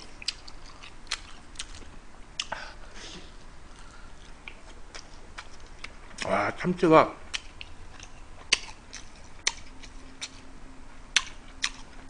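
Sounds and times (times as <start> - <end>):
close-up chewing: 0.0 - 2.6, 3.4 - 6.4, 7.3 - 10.5, 11.1 - 12.0
mouth clicks and smacks: 0.2 - 2.6.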